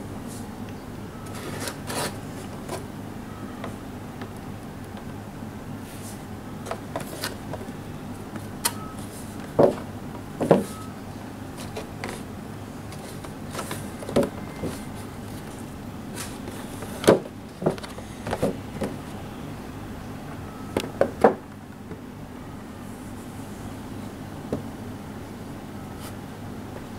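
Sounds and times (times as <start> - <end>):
steady low hum: 0.0 - 26.9.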